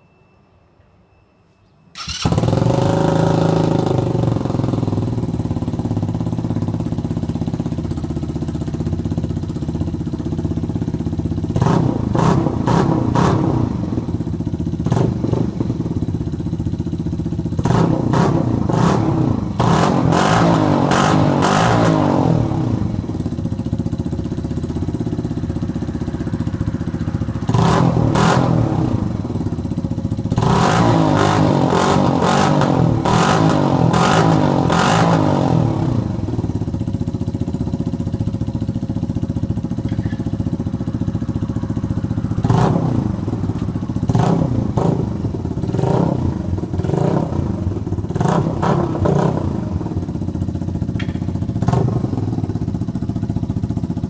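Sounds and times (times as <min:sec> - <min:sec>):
motorcycle engine idling and revving: 0:02.0 - 0:54.0.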